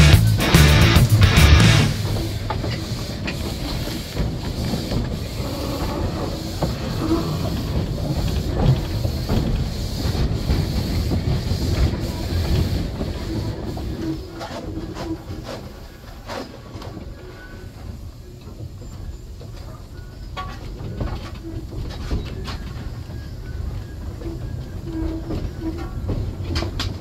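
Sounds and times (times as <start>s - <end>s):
steam hissing: 0.0s - 27.0s
wheels rumbling on rail: 0.0s - 27.0s
clicks and clanks: 19.4s - 22.9s.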